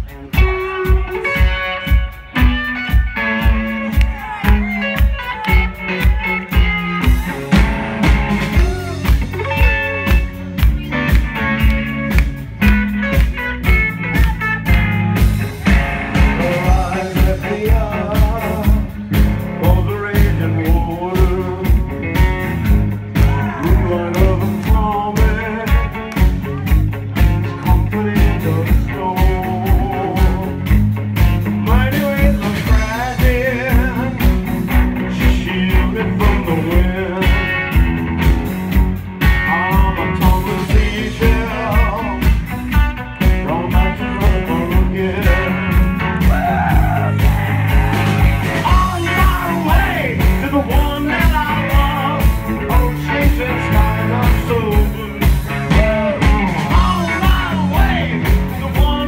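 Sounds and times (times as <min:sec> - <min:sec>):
drum kit beat: 0:00.0 - 0:59.0
electric bass: 0:00.0 - 0:59.0
electric guitar: 0:00.0 - 0:59.0
man singing into microphone: 0:16.2 - 0:21.9, 0:23.2 - 0:26.1, 0:27.4 - 0:30.6, 0:31.6 - 0:34.4, 0:35.0 - 0:37.6, 0:39.3 - 0:42.5, 0:43.3 - 0:47.2, 0:48.5 - 0:59.0.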